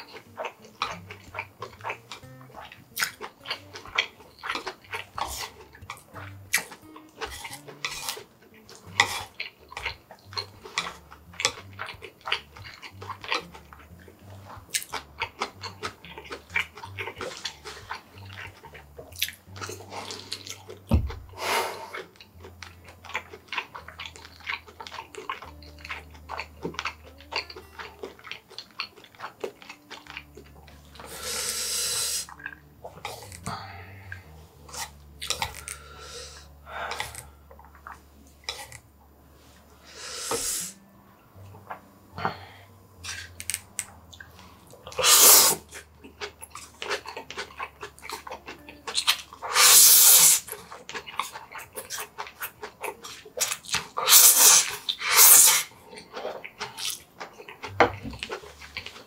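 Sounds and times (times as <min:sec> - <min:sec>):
chewing and slurping noodles: 0:00.0 - 0:38.8, 0:39.4 - 0:59.0
chopsticks clicking on wood: 0:33.1 - 0:33.6, 0:43.1 - 0:43.9.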